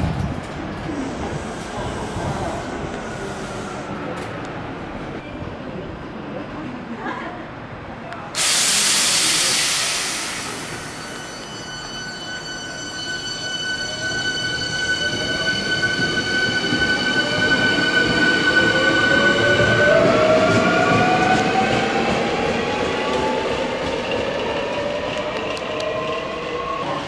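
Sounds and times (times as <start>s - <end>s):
steady high-pitched tone: 9.4s - 19.8s.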